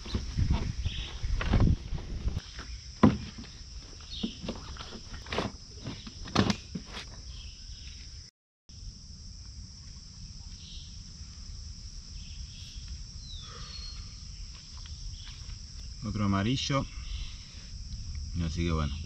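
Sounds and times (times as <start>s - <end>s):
camping gear knocking and rustling: 0.0s - 7.3s.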